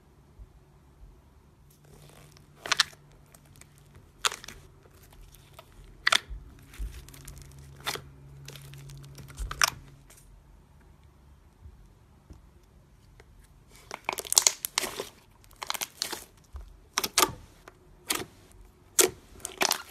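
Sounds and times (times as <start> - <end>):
slime crackling and popping: 1.8 - 10.0, 13.8 - 19.9.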